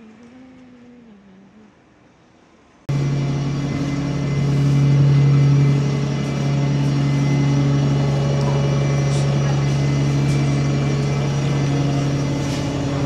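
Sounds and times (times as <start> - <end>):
bus engine hum: 2.8 - 13.0.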